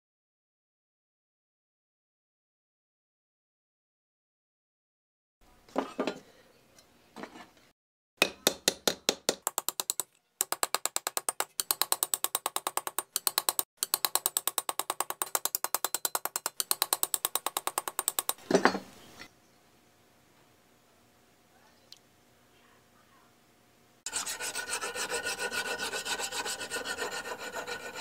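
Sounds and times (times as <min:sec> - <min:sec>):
hammer tapping on wooden block: 0:08.2 - 0:18.4.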